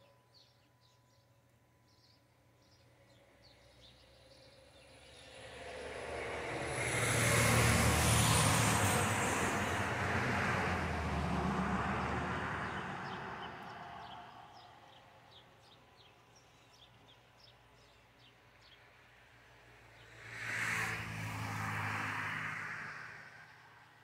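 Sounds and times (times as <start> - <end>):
bird chirping: 0.0 - 5.4
car driving past: 4.9 - 14.6, 20.0 - 23.8.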